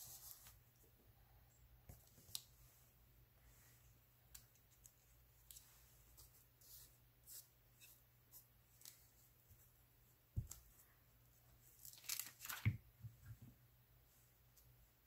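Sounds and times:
paper rustling: 0:11.8 - 0:12.8.

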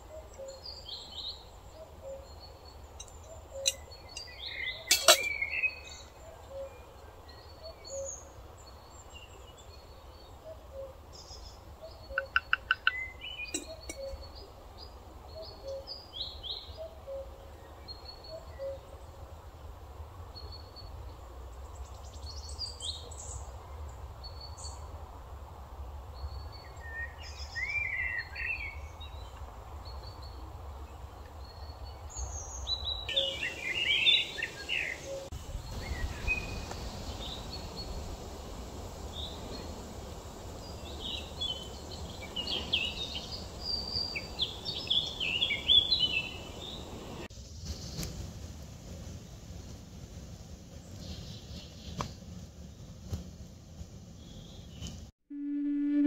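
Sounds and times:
birds chirping and calling: 0:00.1 - 0:08.2, 0:11.8 - 0:14.5, 0:32.9 - 0:37.8, 0:40.6 - 0:47.3.

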